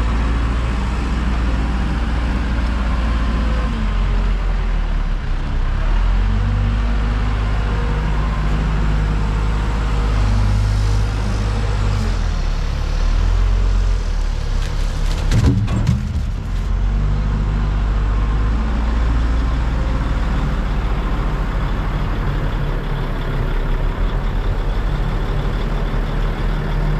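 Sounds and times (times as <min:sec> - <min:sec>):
diesel engine running: 0:00.0 - 0:26.9
knocks: 0:15.3 - 0:16.5.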